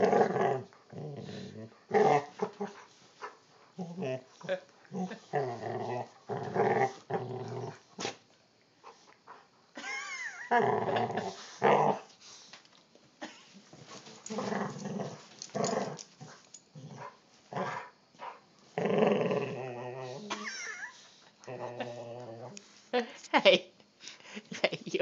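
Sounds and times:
dogs growling: 0:00.0 - 0:08.2, 0:10.4 - 0:12.1, 0:13.7 - 0:22.8.

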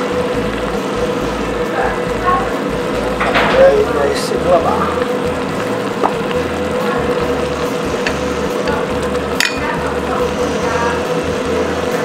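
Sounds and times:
broth bubbling and sizzling in a wok: 0:00.0 - 0:12.0
steady hum: 0:00.0 - 0:12.0.

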